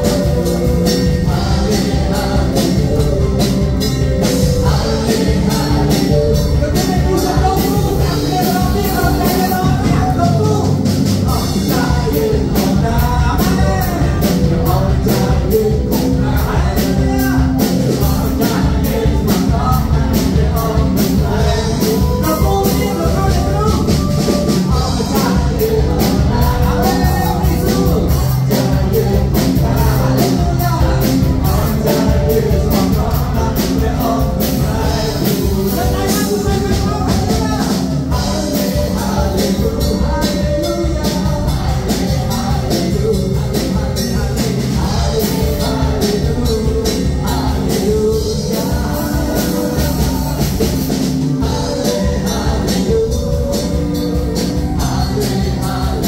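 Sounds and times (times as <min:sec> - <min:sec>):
upbeat worship music with singing: 0:00.0 - 0:56.0.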